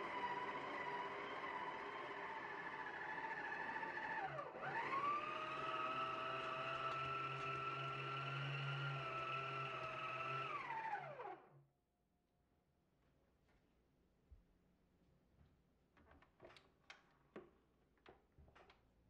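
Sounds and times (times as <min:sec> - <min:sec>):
stand mixer motor whining: 0:00.0 - 0:11.5.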